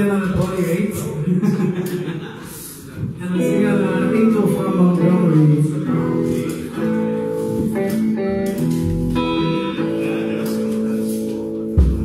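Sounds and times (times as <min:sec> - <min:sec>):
blues band playing live: 0:03.4 - 0:12.0
guitar chords strummed: 0:03.4 - 0:12.0.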